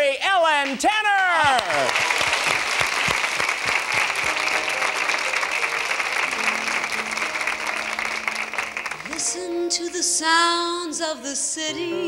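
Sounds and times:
audience applauding: 0.6s - 9.4s.

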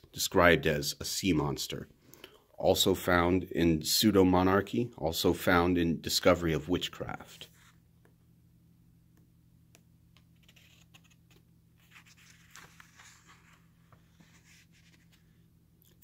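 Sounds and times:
low steady hum: 0.0s - 16.0s
book page turning: 10.2s - 16.0s.

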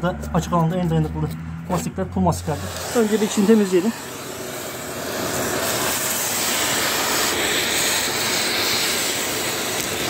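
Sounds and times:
vacuum cleaner running: 2.0s - 10.0s.

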